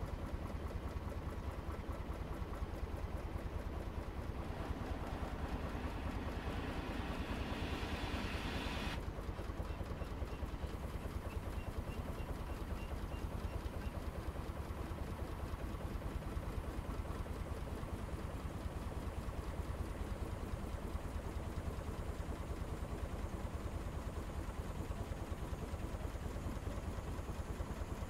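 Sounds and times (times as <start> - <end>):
engine throbbing: 3.4 - 9.0
rushing hiss: 4.5 - 9.0.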